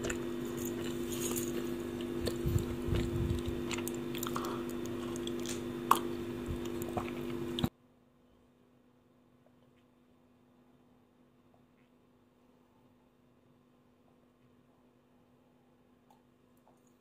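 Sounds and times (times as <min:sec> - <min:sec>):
electrical hum: 0:00.0 - 0:07.7
person chewing: 0:00.0 - 0:07.7.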